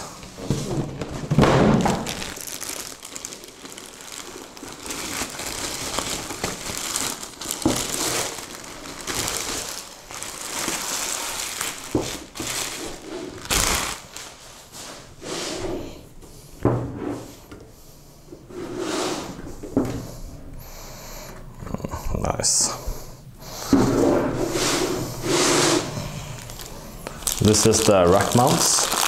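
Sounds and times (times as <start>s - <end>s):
plastic bag crinkling: 0.4s - 14.6s, 25.4s - 29.0s
heavy thud: 0.5s - 2.1s.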